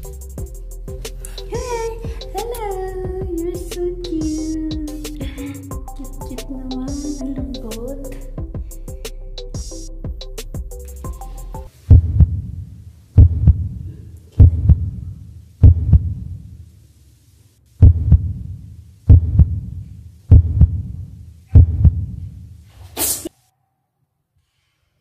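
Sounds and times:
heartbeat thumps: 0:00.0 - 0:12.5, 0:13.2 - 0:13.8, 0:14.4 - 0:15.0, 0:15.6 - 0:16.3, 0:17.8 - 0:21.0, 0:21.6 - 0:22.2
brief hiss: 0:22.8 - 0:23.3.

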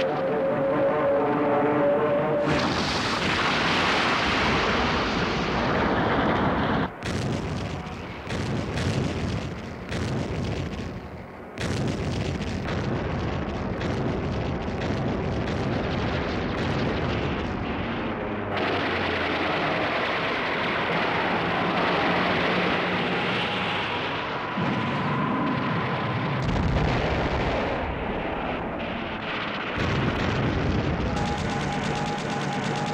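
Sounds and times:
aircraft engine drone: 0:00.0 - 0:12.6, 0:17.4 - 0:29.8, 0:30.5 - 0:32.9
explosion roar: 0:02.4 - 0:20.4, 0:24.5 - 0:32.9
anti-aircraft gunfire bursts: 0:02.4 - 0:22.8, 0:28.8 - 0:32.9.

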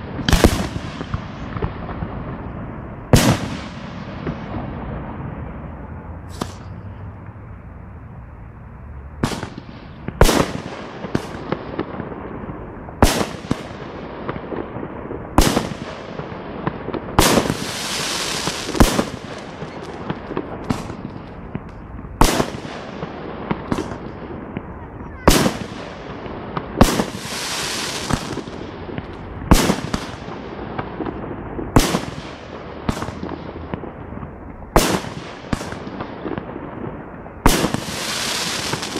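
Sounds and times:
fireworks bursting: 0:00.0 - 0:07.4, 0:09.1 - 0:38.9
firework hiss: 0:06.2 - 0:06.8, 0:17.2 - 0:22.7, 0:26.8 - 0:30.3, 0:37.5 - 0:38.9.

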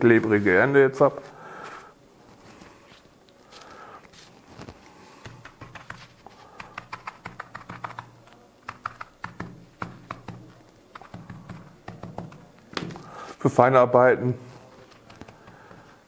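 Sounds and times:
tweezers clicking and tapping: 0:08.7 - 0:12.4, 0:14.9 - 0:15.8.

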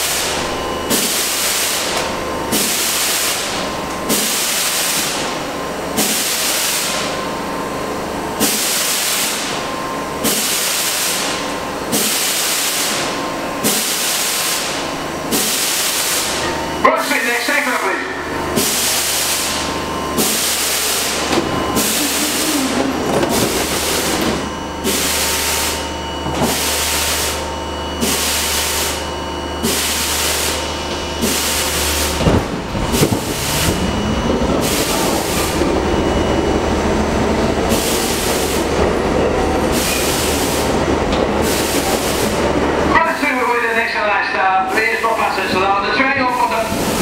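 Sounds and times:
subway wheel and track noise: 0:00.0 - 0:47.0
motor whine rising in pitch: 0:21.2 - 0:24.9
low hum: 0:30.6 - 0:37.7.

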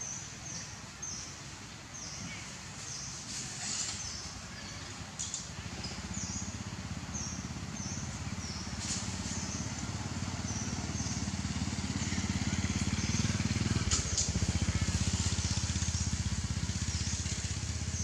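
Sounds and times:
motor engine running: 0:03.4 - 0:18.0.

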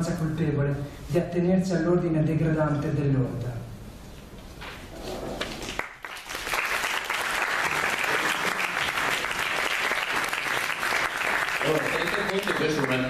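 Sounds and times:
audience applauding: 0:05.5 - 0:13.0.

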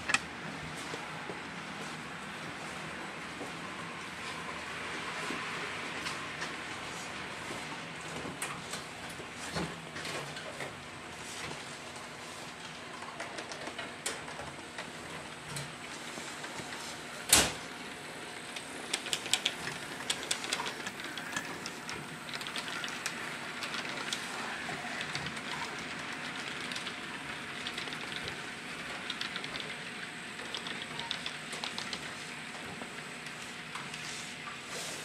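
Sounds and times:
steady train running noise: 0:18.0 - 0:26.8
model train wheels clicking: 0:18.4 - 0:29.8, 0:30.4 - 0:32.0.

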